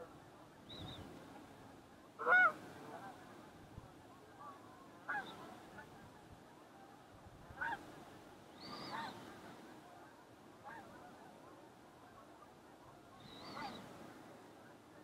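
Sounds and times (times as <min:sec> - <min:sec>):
faint bird calls: 0:00.0 - 0:01.3, 0:02.2 - 0:03.2, 0:04.4 - 0:06.1, 0:07.5 - 0:10.0, 0:10.6 - 0:14.4
faint outdoor background: 0:00.0 - 0:15.0.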